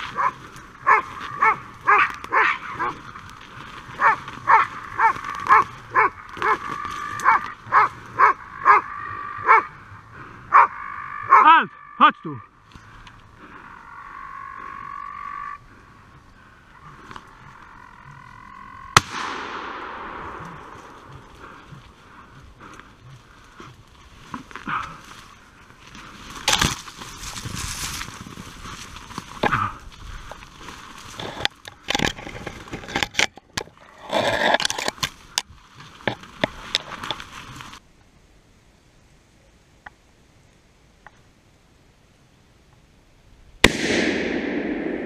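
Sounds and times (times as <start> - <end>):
hound baying: 0.0 - 3.1, 3.9 - 9.8, 10.5 - 11.7
twigs snapping: 0.0 - 8.1, 19.0 - 37.8
stems scraping against clothing: 0.0 - 8.4, 20.2 - 37.8
gunshot with echo: 19.0 - 20.8, 43.6 - 45.0.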